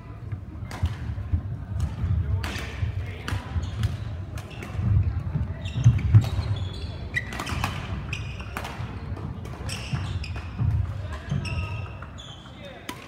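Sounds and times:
shoe squeaks on court floor: 5.6 - 8.6, 9.6 - 12.8.

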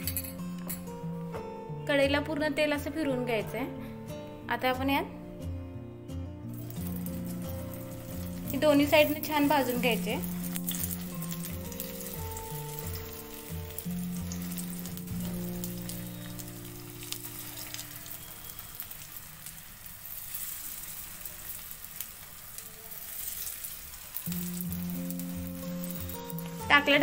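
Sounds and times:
background music: 0.0 - 27.0
patties sizzling in oil: 6.5 - 27.0.

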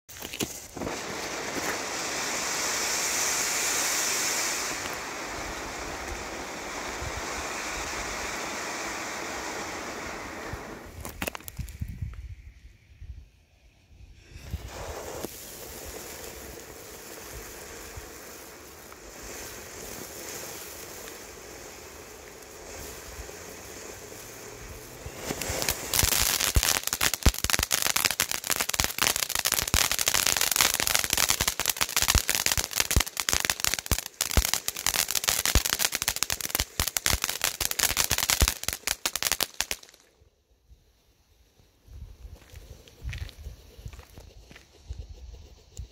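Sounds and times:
firework crackling: 0.1 - 45.9
firework fountain hissing: 0.2 - 45.9.

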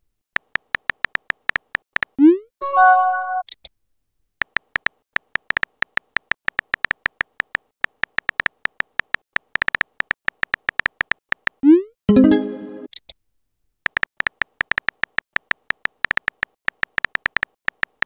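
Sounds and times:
phone keyboard typing clicks: 0.4 - 2.2, 4.4 - 11.6, 13.9 - 18.0
message sent chime: 2.6 - 3.4, 12.1 - 12.9.

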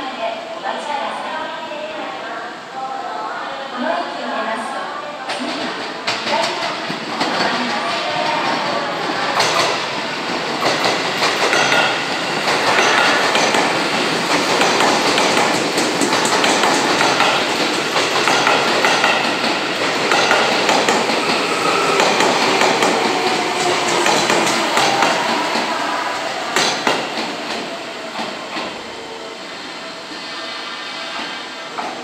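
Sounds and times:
train wheels clattering over rail joints: 9.3 - 25.8, 26.4 - 28.8.

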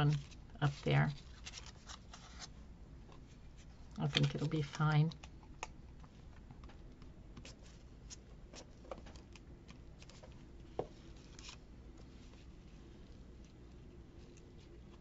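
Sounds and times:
paper rustle: 0.0 - 2.6, 11.0 - 15.0.

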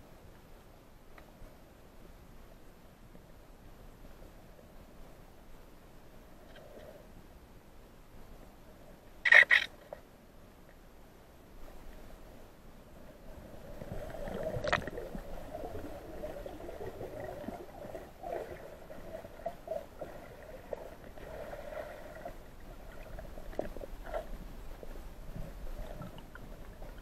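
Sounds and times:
sharp click: 9.2 - 9.8
water bubbling underwater: 13.3 - 27.0.

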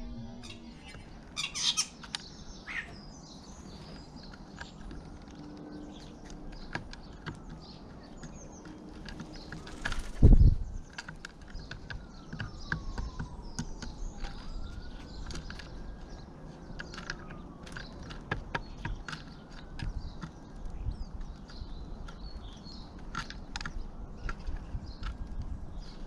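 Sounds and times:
faint birdsong chirps: 0.0 - 26.0
pigeon beaks tapping: 4.3 - 10.1, 10.9 - 14.4, 16.7 - 26.0.

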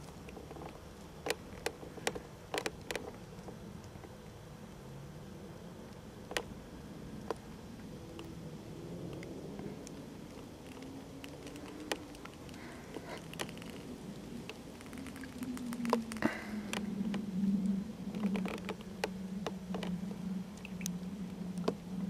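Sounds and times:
low steady hum: 0.0 - 22.0
frogs clucking and clicking: 5.9 - 8.4, 9.0 - 21.8.

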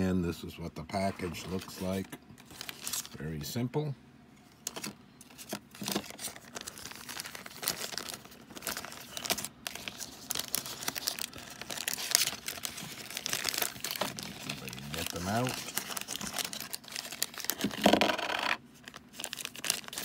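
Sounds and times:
plastic bag crinkling: 4.7 - 20.0.

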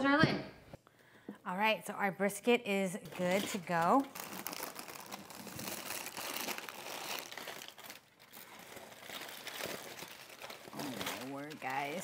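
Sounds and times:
aluminium foil crinkling: 3.1 - 12.0.

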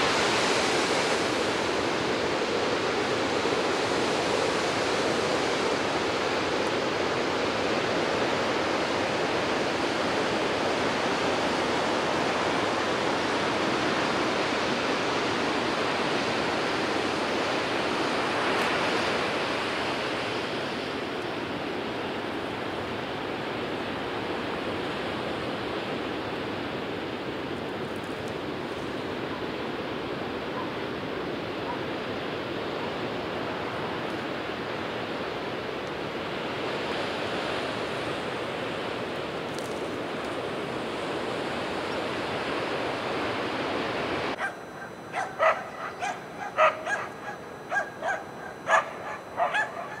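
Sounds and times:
surf rushing: 0.0 - 27.8, 28.4 - 50.0
wind: 0.0 - 50.0
dog barking: 30.5 - 30.8, 31.6 - 31.9, 44.4 - 50.0.

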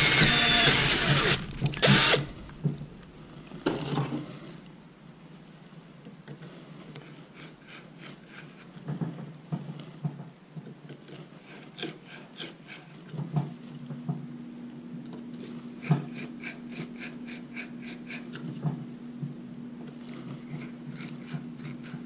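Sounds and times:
steady low hum: 0.0 - 5.2, 13.6 - 22.0.

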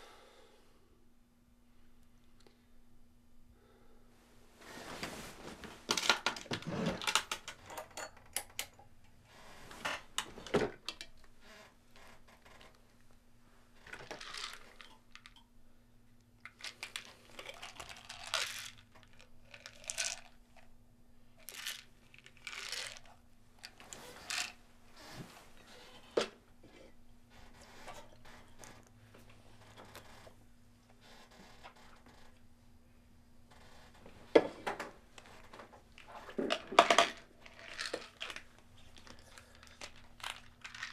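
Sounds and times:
bed covers rustling: 4.3 - 5.9
pills clicking and rattling: 14.0 - 15.4, 16.5 - 20.4, 21.4 - 24.6, 36.0 - 40.9.

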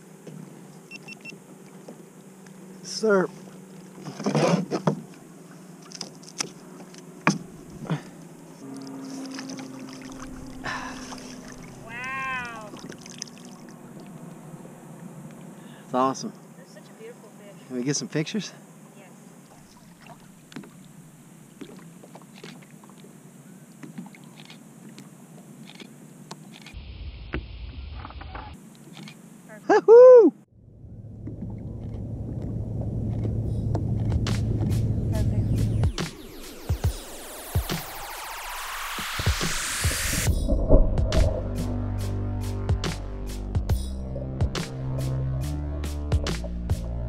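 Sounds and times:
water lapping against kayak hull: 1.4 - 15.7, 19.3 - 26.7
fish splashing at the surface: 8.7 - 14.2.

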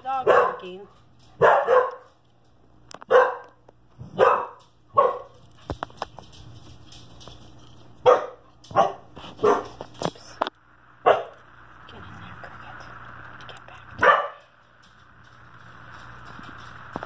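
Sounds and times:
dog barking: 0.1 - 2.1, 3.1 - 5.4, 8.0 - 9.8, 11.0 - 11.4, 14.0 - 14.5.

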